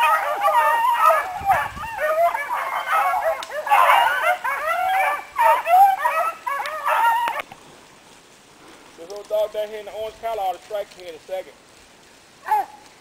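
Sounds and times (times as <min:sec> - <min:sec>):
pack of hounds baying: 0:00.0 - 0:07.5.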